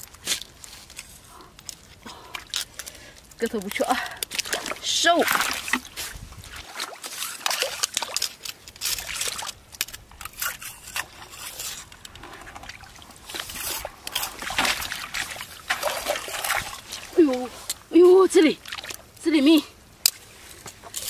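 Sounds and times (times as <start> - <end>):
boots splashing in shallow water: 4.4 - 8.4, 12.4 - 17.7, 18.6 - 19.1.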